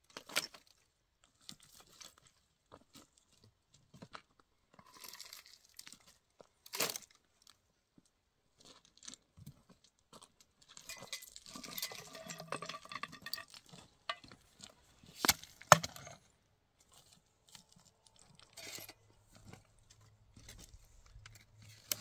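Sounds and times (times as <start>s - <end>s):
objects clinking and scraping: 10.7s - 16.3s, 17.0s - 22.0s.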